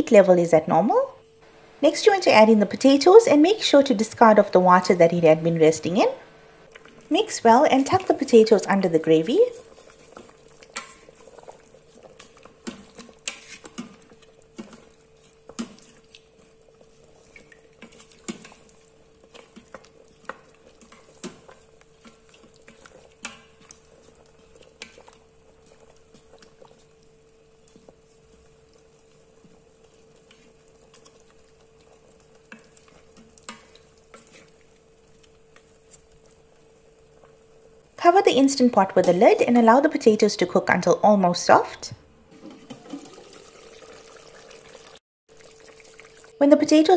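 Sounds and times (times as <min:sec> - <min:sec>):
faint steady hum: 0:00.0 - 0:42.3
wooden spoon scraping metal pot: 0:07.8 - 0:16.0, 0:16.9 - 0:26.7.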